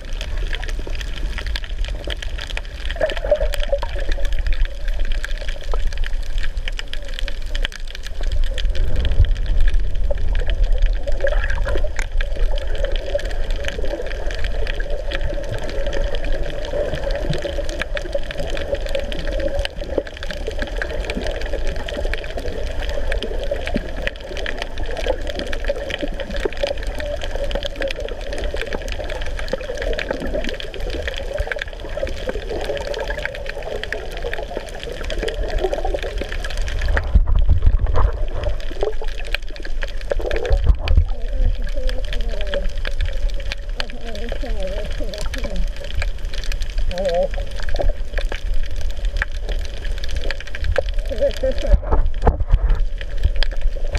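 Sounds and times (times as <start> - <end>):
low rumble: 0.0 - 19.0, 36.6 - 53.9
muffled underwater rush: 0.0 - 53.9.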